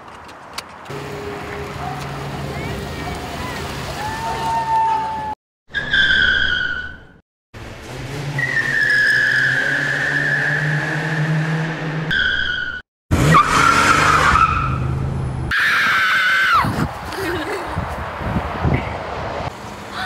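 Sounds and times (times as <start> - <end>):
low engine hum: 0.9 - 5.3
car tyres squealing: 1.0 - 7.2, 8.3 - 16.8.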